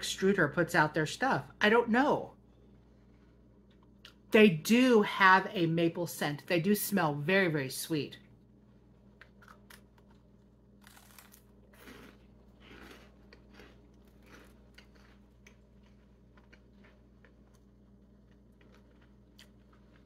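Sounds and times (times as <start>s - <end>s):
crunching and chewing: 8.8s - 20.0s.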